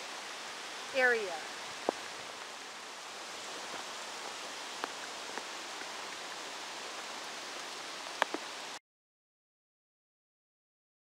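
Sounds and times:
rain: 0:00.0 - 0:08.8
river rushing: 0:00.0 - 0:08.8
wet leaves rustling: 0:00.0 - 0:08.8
faint ticks: 0:08.1 - 0:08.4.

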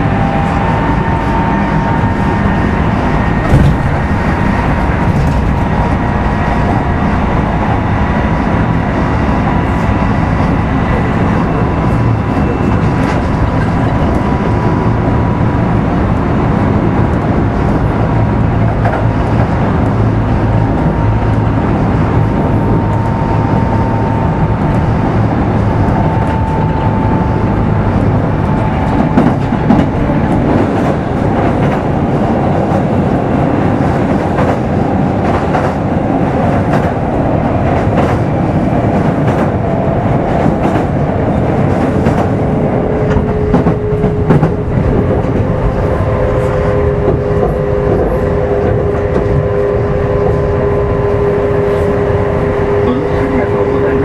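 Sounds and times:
train motor whine: 0:00.0 - 0:54.0
train rumble: 0:00.0 - 0:54.0.

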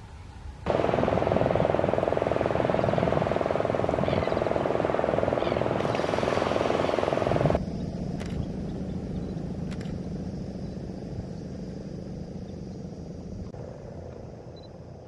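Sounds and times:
surf rushing on a beach: 0:00.7 - 0:07.6.

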